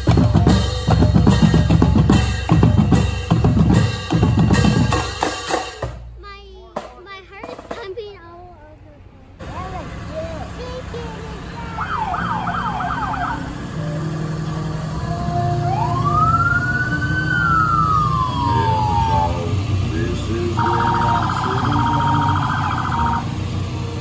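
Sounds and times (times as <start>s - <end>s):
low engine rumble: 0.0s - 24.0s
emergency vehicle sirens: 9.4s - 24.0s.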